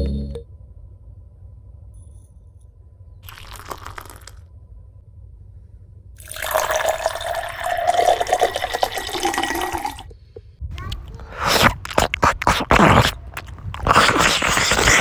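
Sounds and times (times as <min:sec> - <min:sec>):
water pouring into metal bowl: 0:06.2 - 0:10.0.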